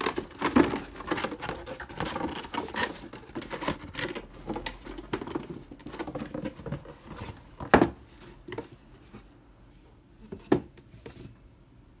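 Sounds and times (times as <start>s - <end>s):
cardboard flaps rustling and scraping: 0.0s - 9.4s.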